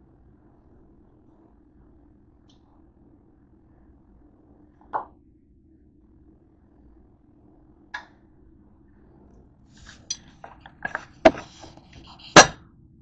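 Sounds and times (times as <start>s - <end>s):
dishes and utensils clinking: 9.8s - 12.6s.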